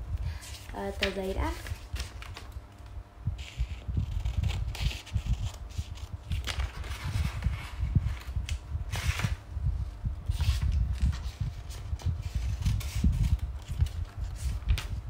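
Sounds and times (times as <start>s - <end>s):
paper rustling: 0.3s - 2.6s, 3.4s - 9.4s, 10.3s - 15.0s.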